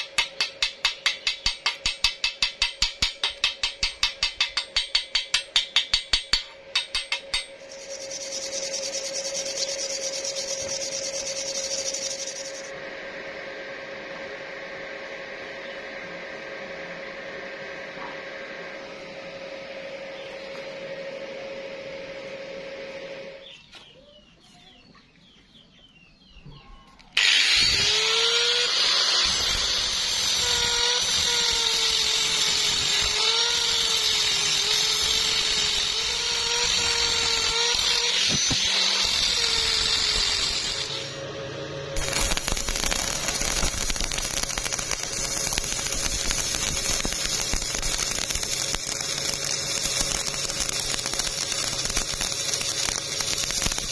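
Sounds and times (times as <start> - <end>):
angle grinder cutting steel: 0.0 - 12.7, 27.2 - 53.9
welding arc crackling: 0.0 - 12.7, 27.2 - 41.2, 42.0 - 53.9.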